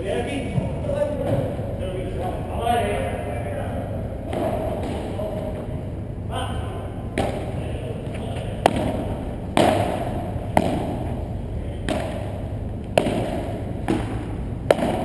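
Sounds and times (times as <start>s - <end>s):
ball bouncing on court and walls: 0.5s - 1.7s, 4.2s - 5.8s, 7.1s - 15.0s
paddle striking ball: 4.2s - 5.8s, 7.1s - 7.6s, 8.2s - 15.0s.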